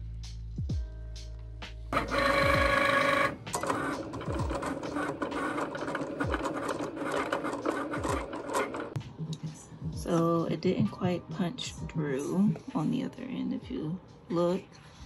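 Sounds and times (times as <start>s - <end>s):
cutting machine motors whirring: 2.0s - 9.0s.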